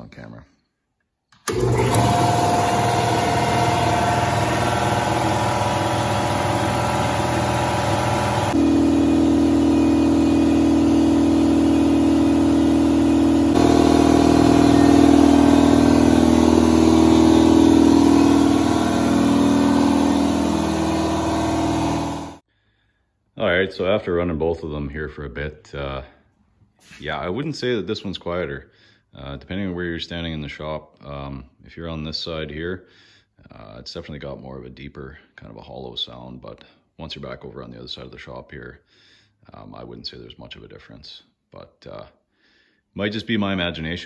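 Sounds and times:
air compressor running: 1.4 - 22.4.

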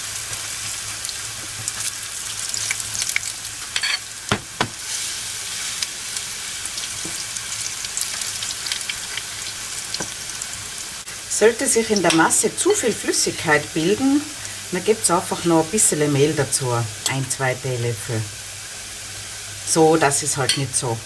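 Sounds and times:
potato fritters sizzling in oil: 0.0 - 21.0
sharp knocks: 4.3 - 4.8.

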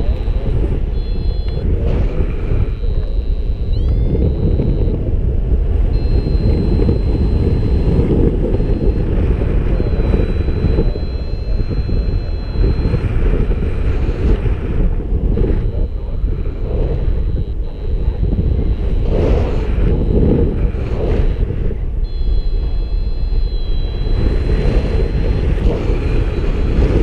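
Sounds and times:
thin high tone: 0.0 - 5.0, 5.8 - 14.2, 22.0 - 26.6
wind buffeting microphone: 0.0 - 27.0.

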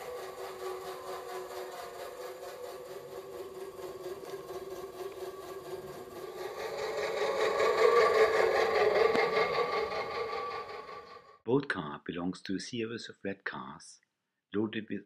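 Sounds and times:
small electric motor whining: 0.0 - 11.4.

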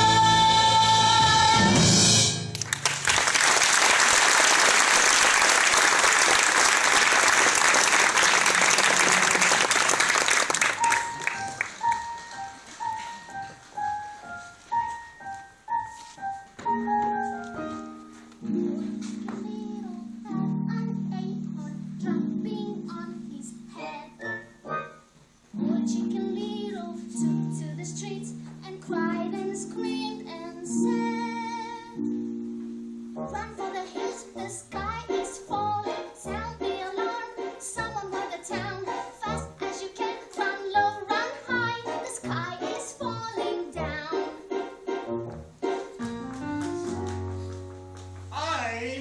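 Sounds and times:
audience applause: 2.6 - 12.1
slow piano melody: 8.0 - 48.6.

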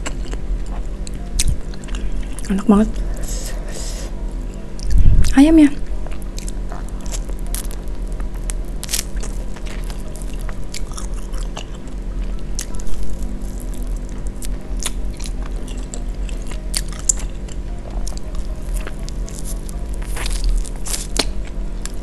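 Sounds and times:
biting and chewing chicken wing: 8.4 - 13.7, 14.3 - 22.0.

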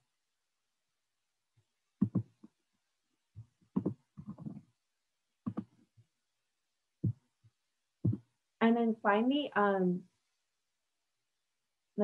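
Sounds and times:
keyboard and desk taps: 3.8 - 4.6, 5.5 - 5.8.

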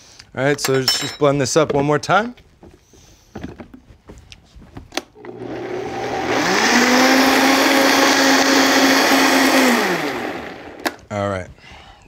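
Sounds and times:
blender motor whining: 5.2 - 11.0.

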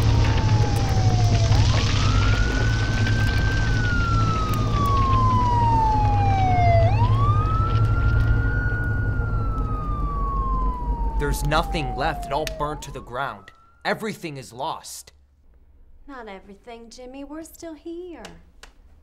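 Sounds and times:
low rumble: 0.0 - 13.4
emergency vehicle siren wailing: 0.0 - 13.9.

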